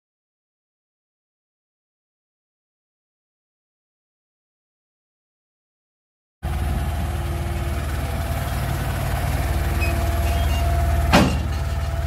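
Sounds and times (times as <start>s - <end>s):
truck engine running: 6.4s - 12.0s.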